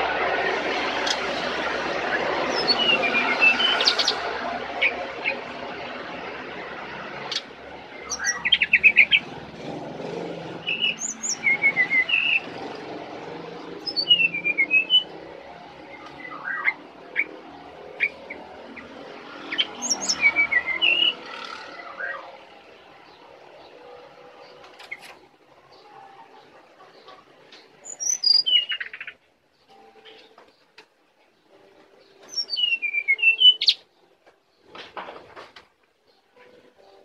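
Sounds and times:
bird singing whistled trills: 2.5s - 4.2s, 8.0s - 9.2s, 10.6s - 12.5s, 13.8s - 15.1s, 15.9s - 17.3s, 19.5s - 22.3s, 27.8s - 29.2s, 32.3s - 33.8s.

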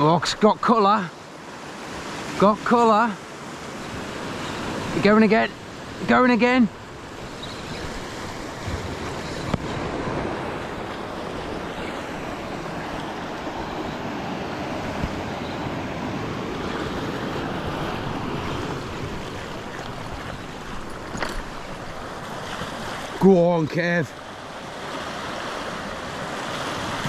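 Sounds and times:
sea surf against rocks: 0.0s - 27.0s
wind on microphone: 6.8s - 23.2s.

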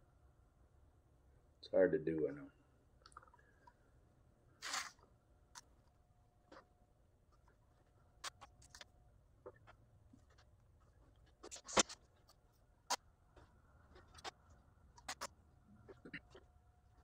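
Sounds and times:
tape clicks and rubs: 4.6s - 5.7s, 8.2s - 8.9s, 11.1s - 16.4s.

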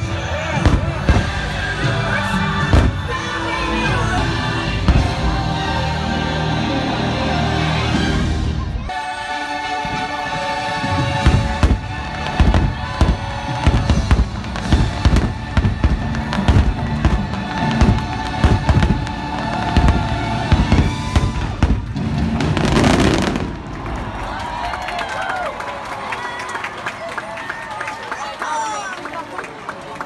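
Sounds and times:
fireworks booms and bangs: 0.0s - 1.8s, 2.6s - 3.3s, 11.0s - 23.9s
fireworks crackling: 10.8s - 24.6s.

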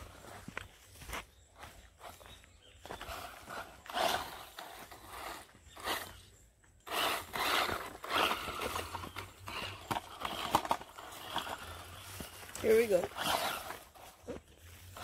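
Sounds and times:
footsteps in sand: 0.0s - 5.2s
toy car tyres churning sand: 3.0s - 15.0s.

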